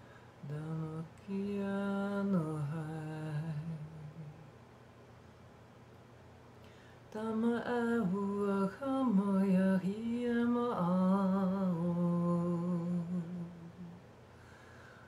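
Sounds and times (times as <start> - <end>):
woman singing wordless chant: 0.4 - 4.5, 7.1 - 14.1.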